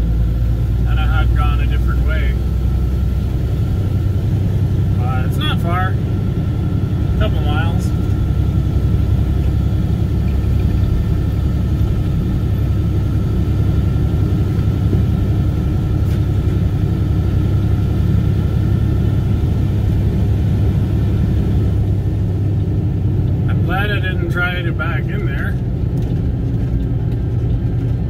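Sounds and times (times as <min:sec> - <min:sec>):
tires rumbling on gravel: 0:00.0 - 0:28.0
truck engine droning: 0:00.0 - 0:28.0.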